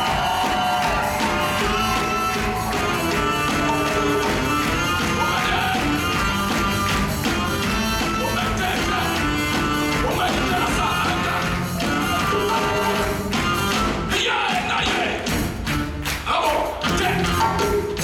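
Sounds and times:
saxophone: 0.0s - 14.2s
drums: 0.0s - 18.0s
guitar: 0.0s - 18.0s.

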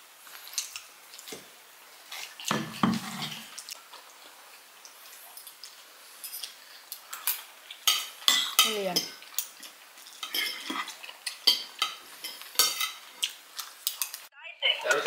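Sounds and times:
cutlery clinking on plates: 6.2s - 14.2s.

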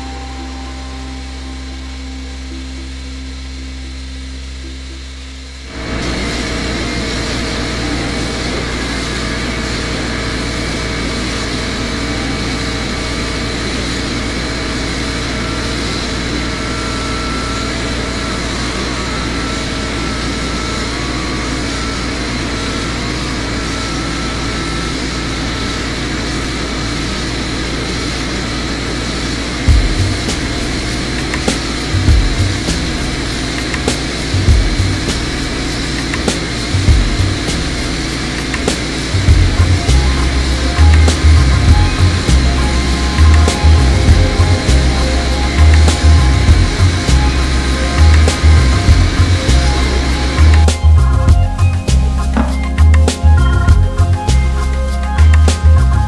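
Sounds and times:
blast gun hissing: 29.7s - 51.2s
sharp knock: 52.4s - 53.2s.

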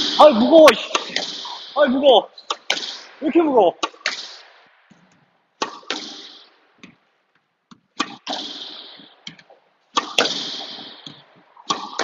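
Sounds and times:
racket hitting squash ball: 0.0s - 7.0s, 7.7s - 12.0s
ball hitting front wall: 5.6s - 7.0s, 7.8s - 12.0s.

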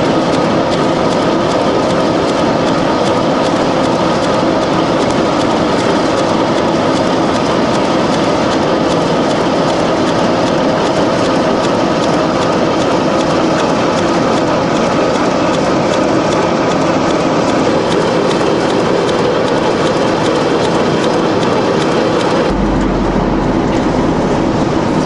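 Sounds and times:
rapid clattering clicks: 0.0s - 25.0s
wood chipper running: 22.4s - 25.0s.

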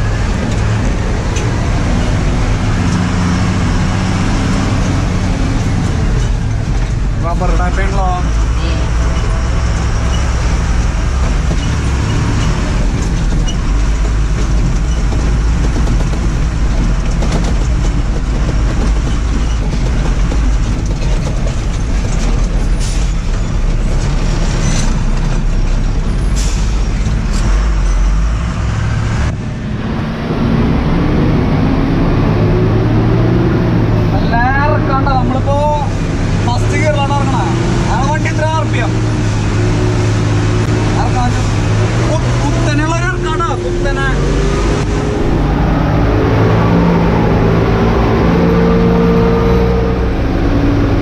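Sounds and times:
truck diesel engine under load: 0.0s - 51.0s
cab knocks and rattles: 10.1s - 26.1s.

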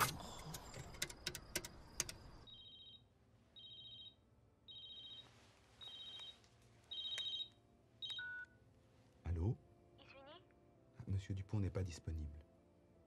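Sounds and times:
payphone keypad buttons clicking: 0.6s - 2.3s.

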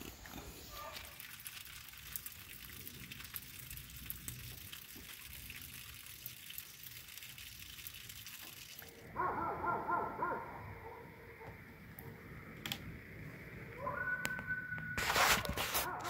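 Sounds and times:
outdoor hiss: 0.0s - 16.0s
coyotes yipping and howling: 13.6s - 15.0s.

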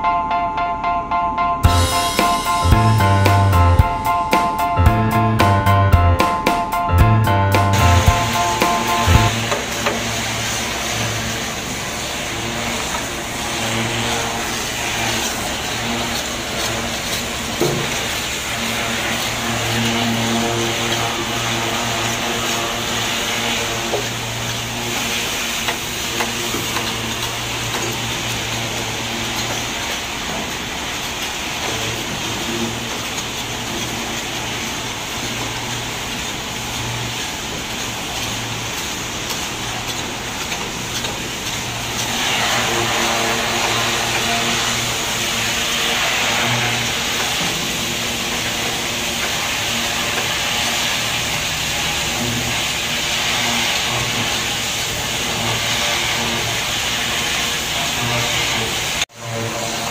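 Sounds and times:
machinery hum and hiss: 1.4s - 59.9s.

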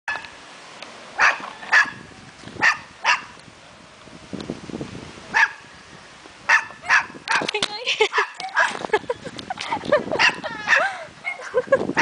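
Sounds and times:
animal barking: 1.2s - 2.0s, 2.6s - 3.4s, 5.3s - 5.6s, 6.5s - 7.5s, 10.2s - 12.0s.

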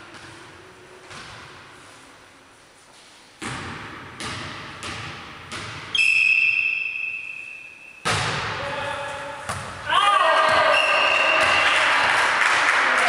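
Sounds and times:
volleyball thudding: 3.4s - 6.0s, 8.0s - 8.6s, 9.4s - 11.8s
referee's whistle blast: 5.9s - 8.0s, 10.6s - 11.8s
loud ball strike: 8.0s - 8.6s, 9.4s - 10.7s.

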